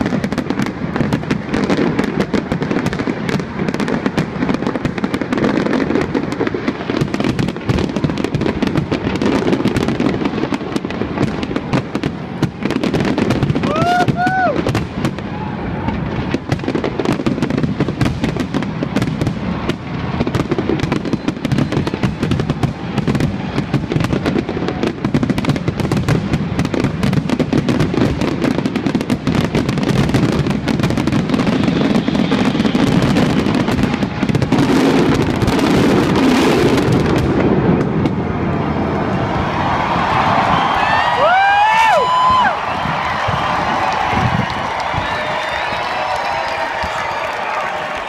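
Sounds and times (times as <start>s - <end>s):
fireworks bursting and crackling: 0.0s - 48.0s.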